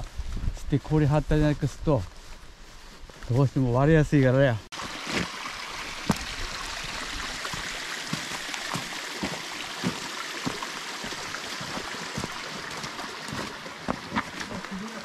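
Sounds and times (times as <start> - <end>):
footsteps on snowy path: 0.0 - 5.4, 6.1 - 15.0
stream flowing over rocks: 4.7 - 15.0.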